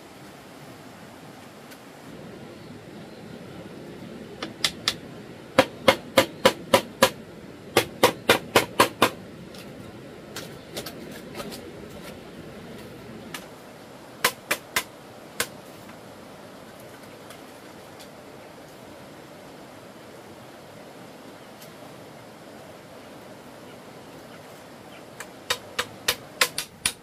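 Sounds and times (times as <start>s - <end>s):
background hiss: 0.0s - 27.0s
hand tool knocking wood: 5.6s - 7.2s, 7.8s - 9.2s, 25.2s - 27.0s.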